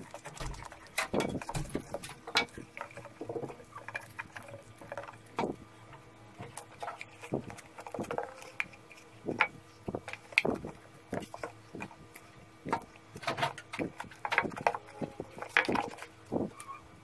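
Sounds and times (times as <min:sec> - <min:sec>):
plastic bottle crinkling and tapping: 0:12.6 - 0:16.6.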